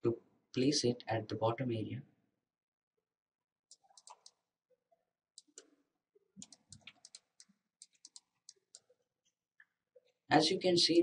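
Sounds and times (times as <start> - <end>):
mouse and keyboard clicks: 3.7 - 4.4, 6.4 - 8.9.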